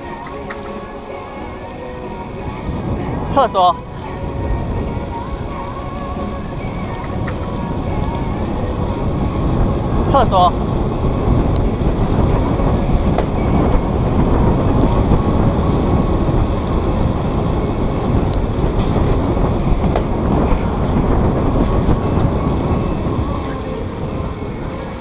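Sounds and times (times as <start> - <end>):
wind buffeting microphone: 0.0 - 25.0
faint clicks: 0.2 - 0.9.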